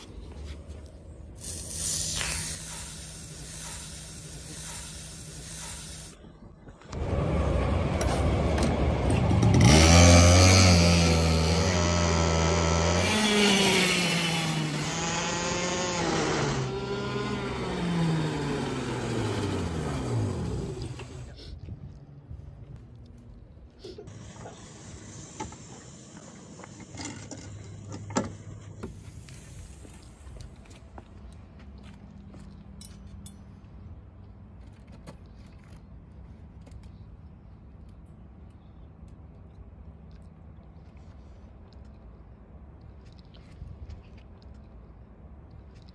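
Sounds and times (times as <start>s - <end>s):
go-kart engine idling and revving: 7.0s - 21.4s.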